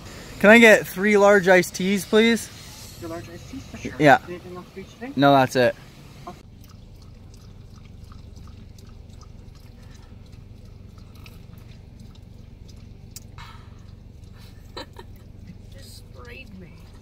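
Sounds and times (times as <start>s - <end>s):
car engine idling: 0.0s - 17.0s
people sipping drinks: 6.4s - 17.0s.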